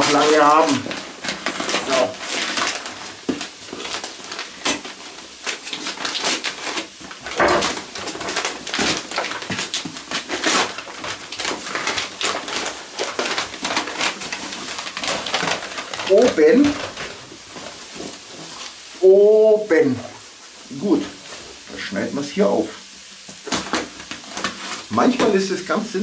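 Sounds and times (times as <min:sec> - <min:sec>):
wrapping paper rustling and crinkling: 0:00.0 - 0:26.0.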